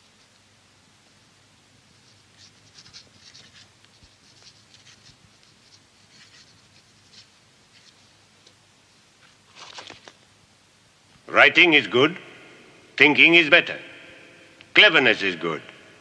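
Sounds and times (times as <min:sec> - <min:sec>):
pen scratching on paper: 0:02.0 - 0:08.0.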